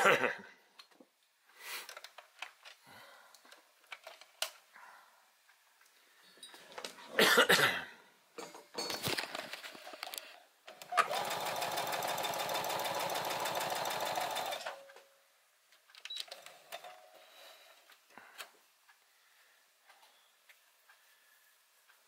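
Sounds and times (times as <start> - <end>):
sewing machine stitching: 10.8 - 14.9.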